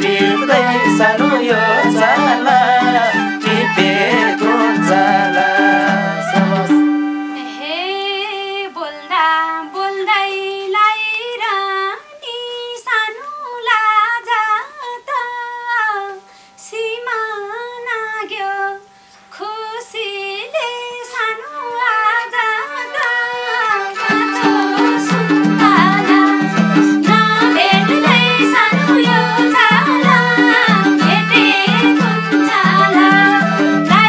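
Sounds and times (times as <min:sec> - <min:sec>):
folk melody over low drone: 0:00.0 - 0:07.9, 0:23.7 - 0:34.0.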